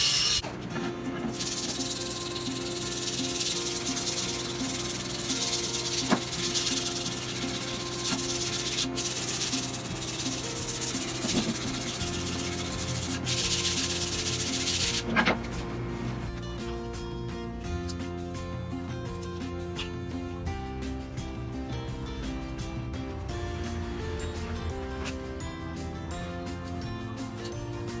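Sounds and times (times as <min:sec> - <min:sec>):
faint background music: 0:00.4 - 0:28.0
sanding hiss: 0:01.4 - 0:15.0.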